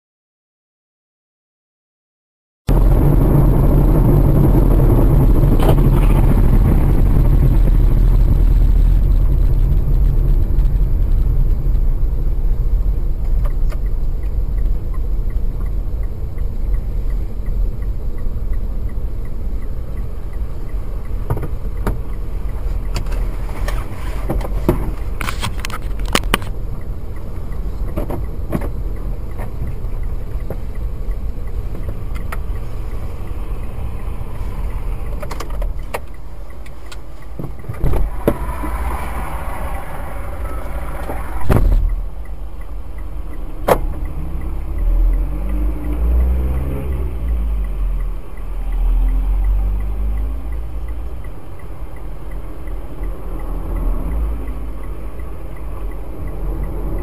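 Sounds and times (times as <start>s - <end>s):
car engine and road rumble: 2.7s - 57.0s
sharp clicks and knocks: 27.9s - 32.7s.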